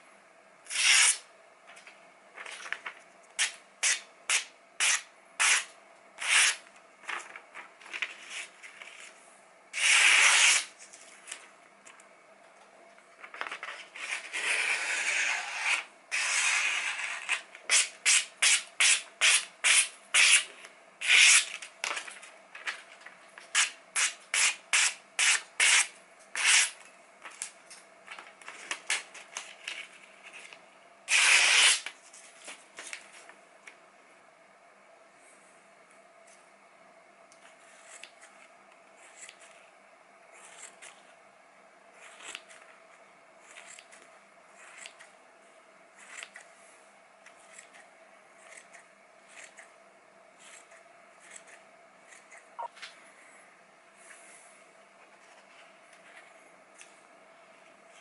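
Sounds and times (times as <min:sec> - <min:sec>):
knife slicing paper: 0:00.7 - 0:01.2, 0:03.4 - 0:07.2, 0:09.8 - 0:10.8, 0:13.5 - 0:21.6, 0:23.5 - 0:26.8, 0:31.1 - 0:31.9.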